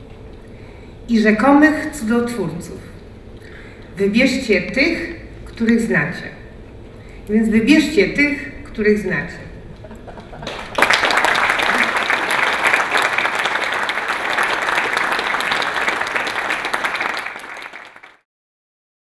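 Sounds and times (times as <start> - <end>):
audience applauding: 10.0 - 18.2.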